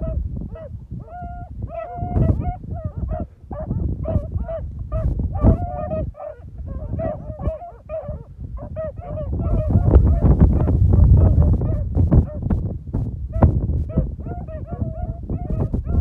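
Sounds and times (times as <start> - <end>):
hounds baying: 0.0 - 12.4, 13.3 - 16.0
wind rumbling on microphone: 0.0 - 16.0.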